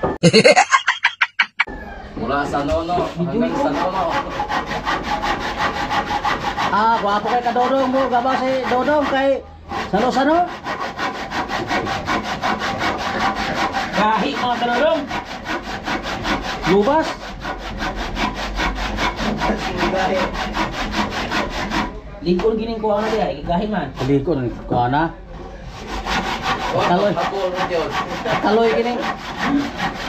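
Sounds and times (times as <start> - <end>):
handsaw cutting wood: 2.9 - 22.0, 25.7 - 30.0.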